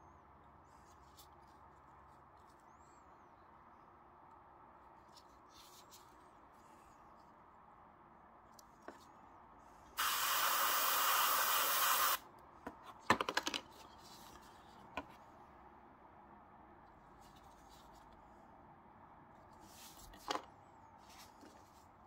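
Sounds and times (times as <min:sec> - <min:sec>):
airbrush spraying hiss: 0:10.0 - 0:12.2.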